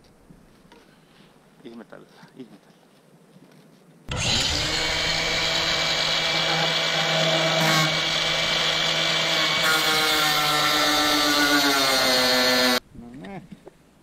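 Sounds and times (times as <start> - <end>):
power tool motor whining: 4.1 - 12.8.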